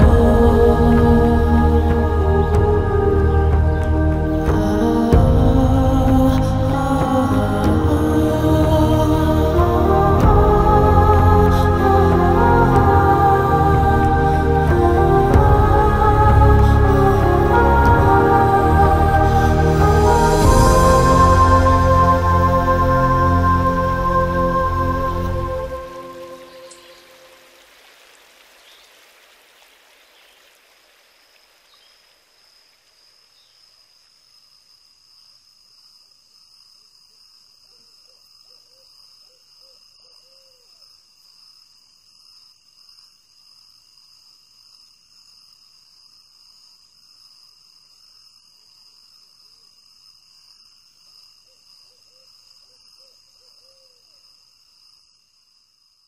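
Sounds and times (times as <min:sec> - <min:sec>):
lower insect calls: 0:00.0 - 0:56.0
insects trilling: 0:21.1 - 0:56.0.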